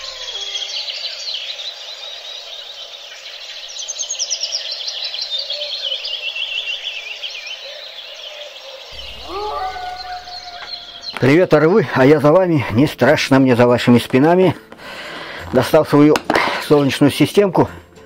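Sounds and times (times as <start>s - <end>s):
birds chirping: 0.0s - 13.5s
bird trill falling in pitch: 8.9s - 11.5s.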